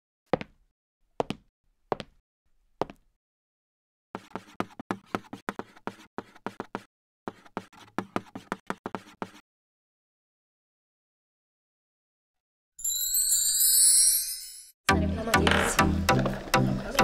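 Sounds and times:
handwriting taps and scratches: 4.2 - 9.4.

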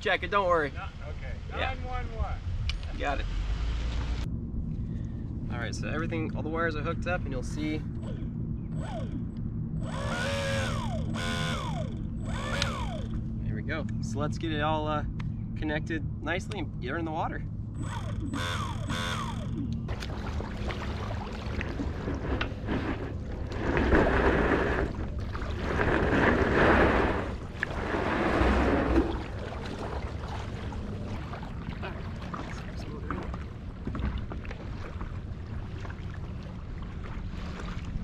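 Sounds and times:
water lapping against a paddle board: 17.8 - 38.0
wind on the microphone: 21.0 - 38.0.

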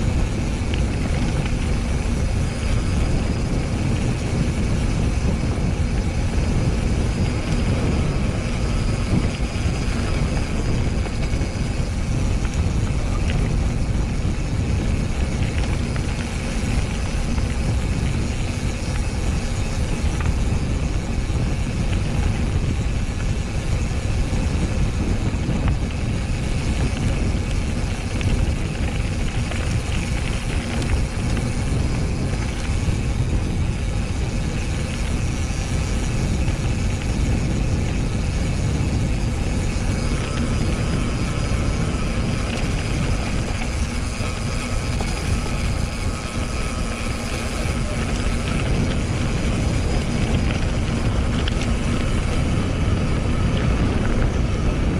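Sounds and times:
tyre and trail rumble: 0.0 - 54.9
wind buffeting microphone: 0.0 - 54.9.

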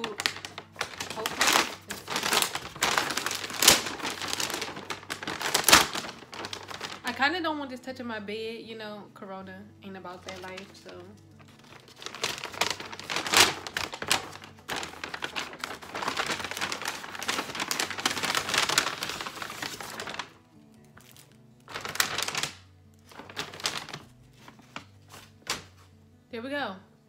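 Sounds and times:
paper bag rustling: 0.0 - 7.3, 10.0 - 25.9.

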